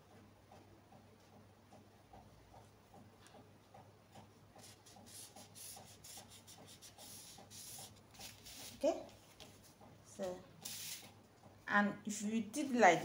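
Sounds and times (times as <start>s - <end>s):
marker scratching on paper: 4.1s - 9.6s, 10.6s - 11.2s.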